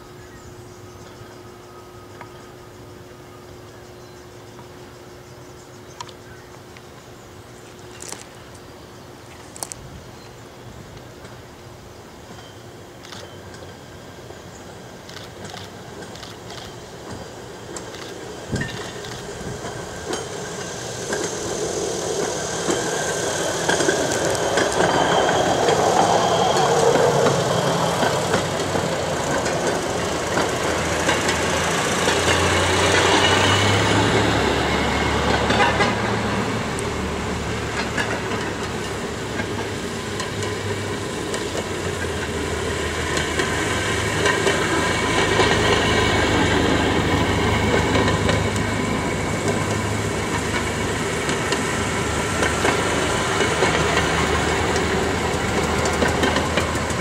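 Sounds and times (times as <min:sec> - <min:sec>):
steel wheels clicking over rail joints: 0:14.7 - 0:57.0.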